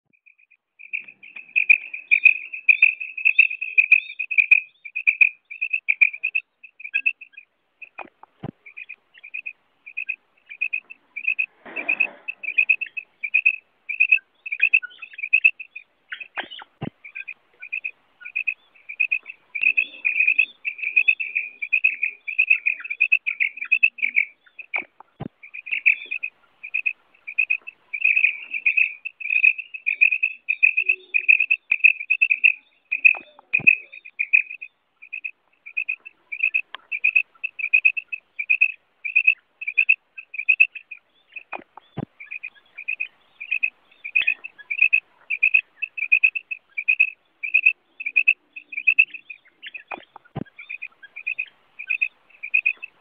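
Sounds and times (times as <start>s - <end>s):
quail calling: 0.8s - 53.0s.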